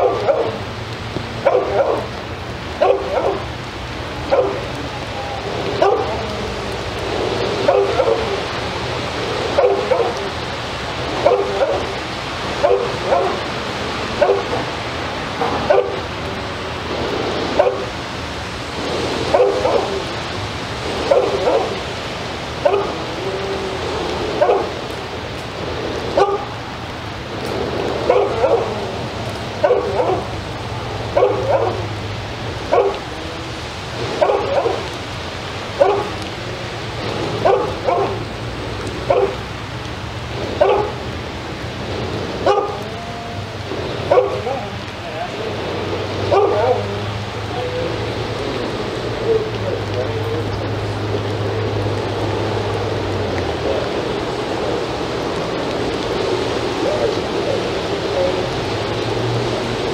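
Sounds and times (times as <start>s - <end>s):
dog barking: 0.0s - 0.7s, 1.4s - 2.2s, 2.8s - 3.5s, 4.2s - 4.8s, 5.7s - 6.4s, 7.3s - 8.6s, 9.4s - 10.4s, 11.1s - 16.1s, 17.5s - 18.0s, 19.1s - 20.2s, 20.9s - 22.0s, 22.6s - 23.1s, 24.3s - 24.8s, 26.1s - 26.6s, 28.0s - 28.9s, 29.6s - 30.4s, 31.0s - 31.9s, 32.6s - 33.2s, 34.0s - 35.0s, 35.7s - 36.2s, 37.2s - 38.3s, 39.0s - 39.5s, 40.5s - 41.0s, 42.4s - 43.0s, 44.0s - 45.6s, 46.2s - 47.7s.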